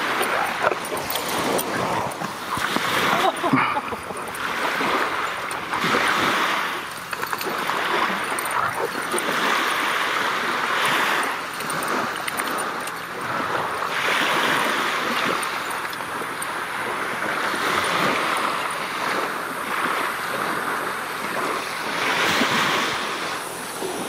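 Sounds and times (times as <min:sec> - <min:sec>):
surf washing up on beach: 0:00.0 - 0:24.0.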